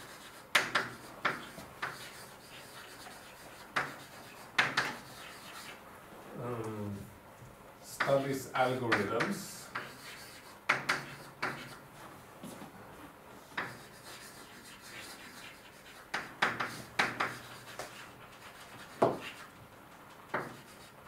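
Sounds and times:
writing scratches on a board: 0:00.0 - 0:05.8, 0:08.9 - 0:11.8, 0:13.4 - 0:19.6, 0:20.3 - 0:21.0.

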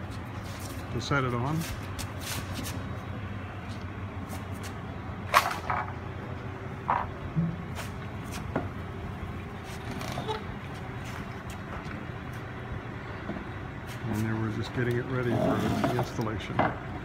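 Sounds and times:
low background hum: 0:00.0 - 0:17.0
knocks and clunks on wood: 0:16.6 - 0:16.8.

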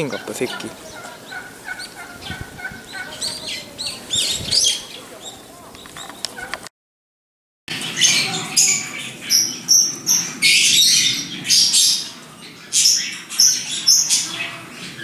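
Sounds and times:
small parrots squawking: 0:00.0 - 0:06.6, 0:07.7 - 0:15.0.

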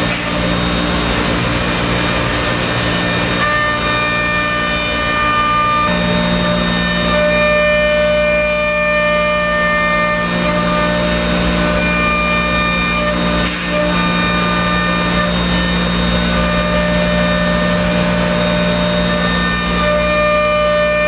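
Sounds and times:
bit cutting board rushing: 0:00.0 - 0:21.0
router spindle whine: 0:00.0 - 0:21.0.

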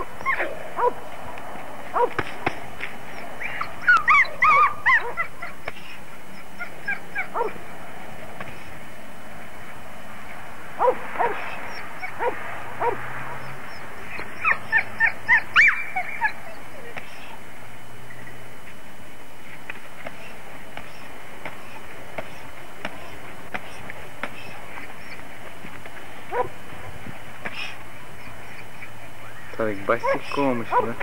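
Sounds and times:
dogs barking: 0:00.0 - 0:05.6, 0:06.2 - 0:07.7, 0:10.8 - 0:17.4, 0:26.3 - 0:31.0.

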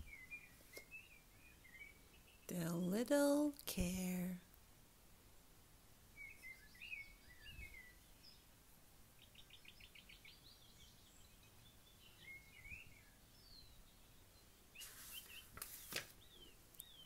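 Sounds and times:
faint birds chirping: 0:00.0 - 0:17.0
book page turning: 0:14.8 - 0:16.2.

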